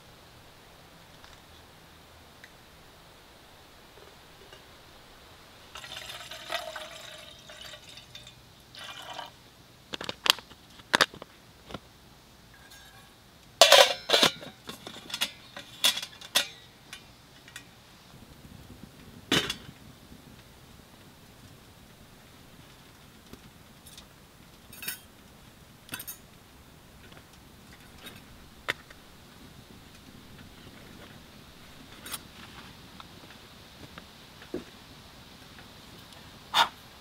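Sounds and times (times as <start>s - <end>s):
water poured into metal pot: 5.7s - 9.4s
metal pot and lid clanking: 12.5s - 17.7s, 24.8s - 25.1s, 25.9s - 26.2s.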